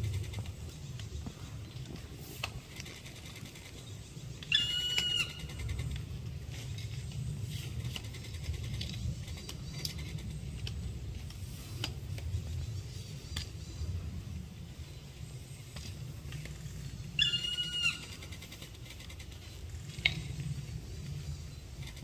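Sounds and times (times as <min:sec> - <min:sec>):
steady low rumble: 0:00.0 - 0:22.0
woodpecker call: 0:03.8 - 0:06.0, 0:17.2 - 0:19.2.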